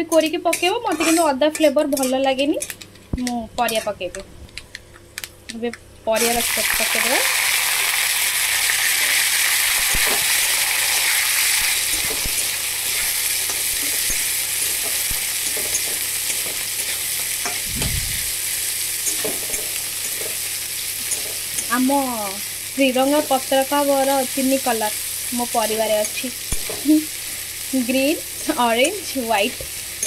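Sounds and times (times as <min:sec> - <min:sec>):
vegetables sizzling in hot oil: 0:06.2 - 0:30.0.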